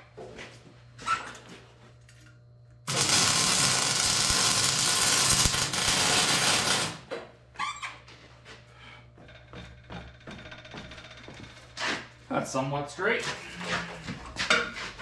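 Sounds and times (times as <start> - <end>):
welding arc hissing: 2.9 - 7.1.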